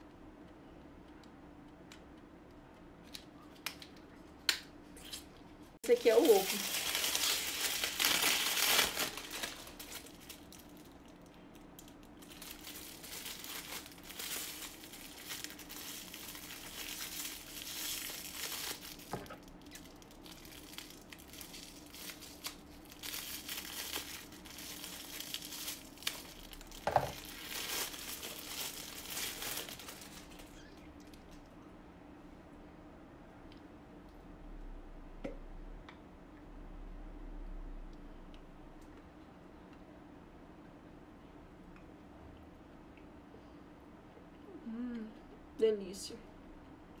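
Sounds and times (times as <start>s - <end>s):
foil wrapper crinkling: 5.9s - 31.3s.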